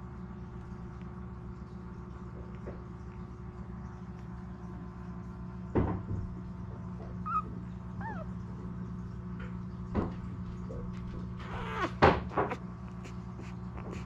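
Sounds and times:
low steady hum: 0.0s - 14.0s
puppy squeaking: 7.2s - 8.4s, 11.4s - 14.0s.

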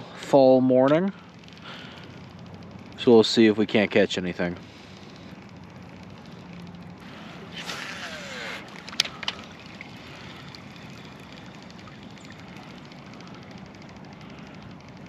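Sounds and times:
sharp reel clicks: 0.8s - 15.0s
fishing line whirring off reel: 1.2s - 15.0s.

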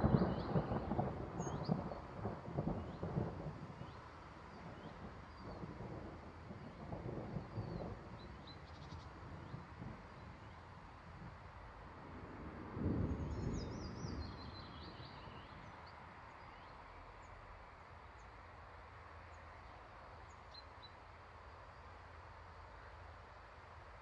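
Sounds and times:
low rumble of thunder: 0.0s - 17.3s.

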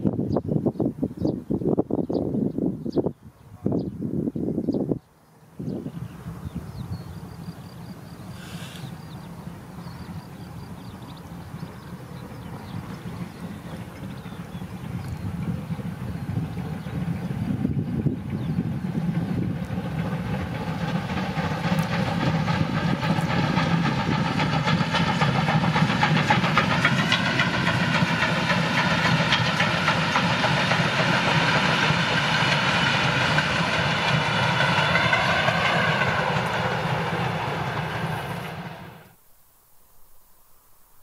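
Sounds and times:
steam locomotive exhaust: 7.3s - 39.2s.

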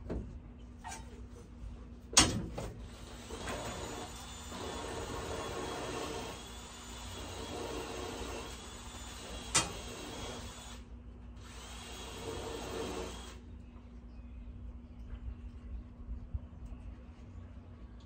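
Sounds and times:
power tool running: 2.8s - 13.4s.

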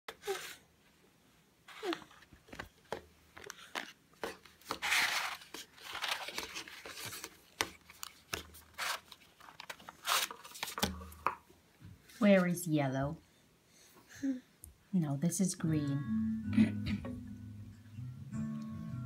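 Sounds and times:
rustling: 1.6s - 12.6s
cardboard scraping and rubbing: 4.6s - 10.8s.

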